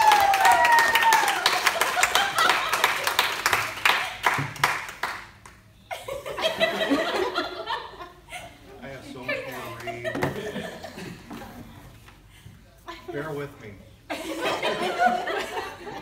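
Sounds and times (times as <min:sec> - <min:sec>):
gliding vocal whoop: 0:00.0 - 0:01.6
group clapping and cheering: 0:00.0 - 0:05.7.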